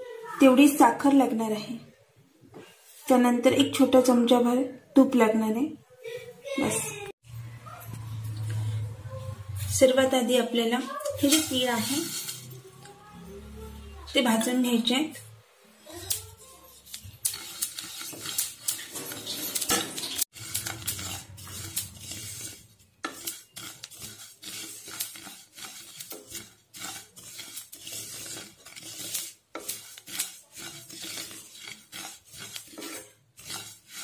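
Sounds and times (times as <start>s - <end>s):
spatula scraping a pan: 7.9s - 34.0s.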